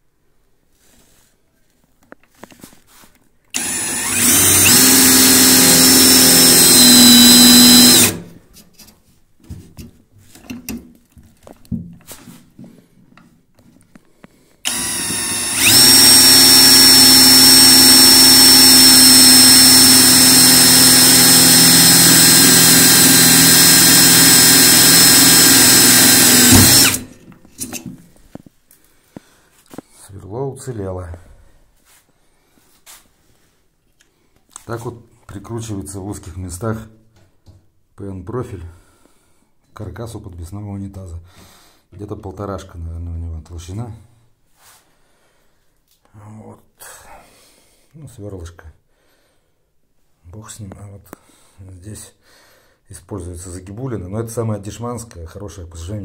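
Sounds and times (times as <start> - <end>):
cordless drill whining: 3.5 - 8.3, 14.6 - 27.2.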